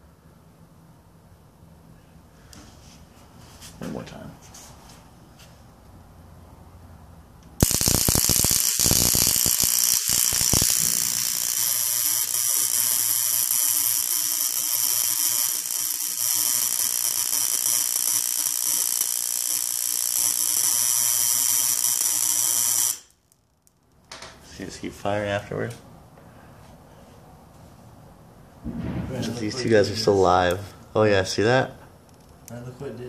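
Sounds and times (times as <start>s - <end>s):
sharp spark cracks: 7.6s - 23.4s
high-voltage sparks buzzing: 7.6s - 23.8s.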